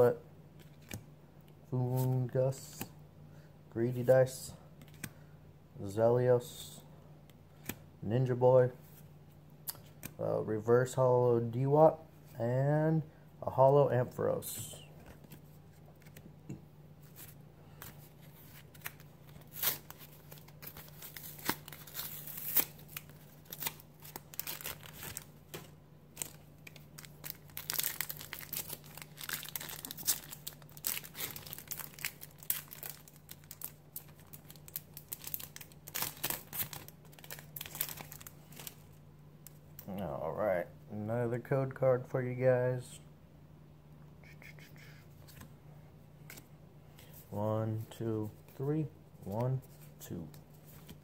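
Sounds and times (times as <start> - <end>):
foil wrapper crinkling: 18.6 - 38.8.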